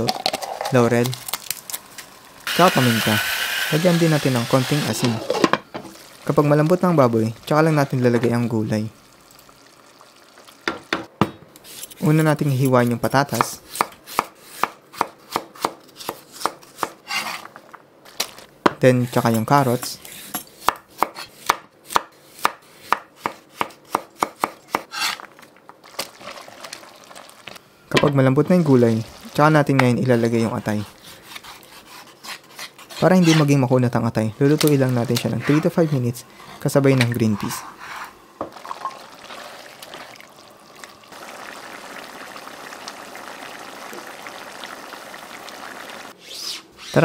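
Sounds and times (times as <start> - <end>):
knife chopping on wooden board: 20.6 - 24.9
stew bubbling and popping: 38.4 - 46.1.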